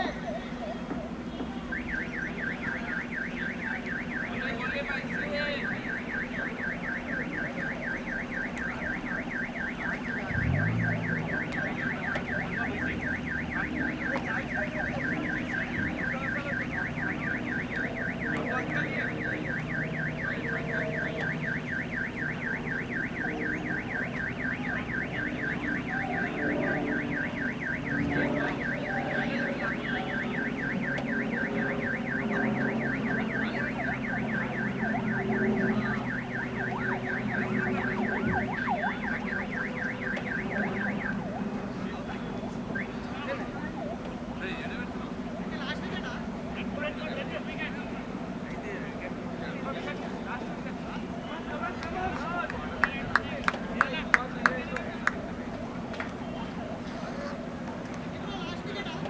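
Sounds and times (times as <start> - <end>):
electronic alarm warbling: 5.0 - 44.0.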